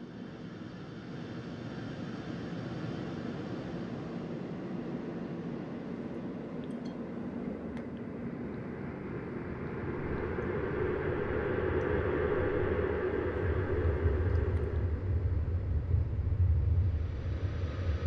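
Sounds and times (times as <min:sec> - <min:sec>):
low rumbling drone: 0:09.2 - 0:18.0.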